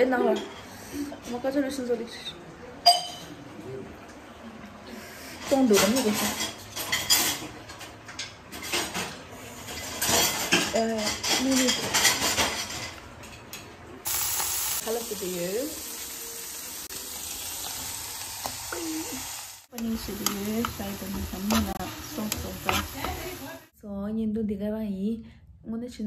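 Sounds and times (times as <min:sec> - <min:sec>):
food sizzling in oil in a wok: 0:14.0 - 0:23.6.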